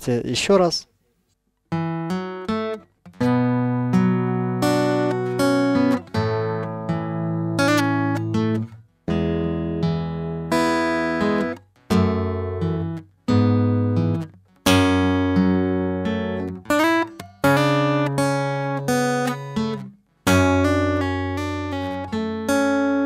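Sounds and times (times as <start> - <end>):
fingerpicked acoustic guitar: 1.7 - 23.0.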